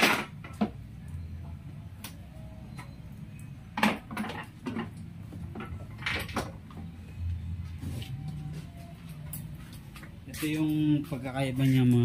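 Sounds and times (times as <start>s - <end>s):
motorcycle parts clacking: 3.7s - 7.0s.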